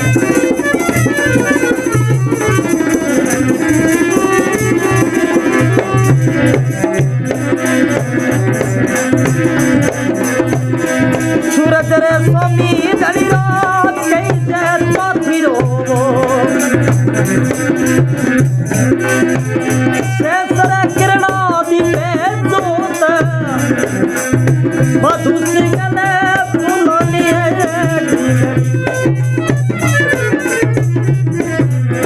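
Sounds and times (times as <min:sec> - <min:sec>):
wavering melody: 0:00.0 - 0:10.9, 0:25.9 - 0:32.0
hand drum rhythm: 0:00.0 - 0:32.0.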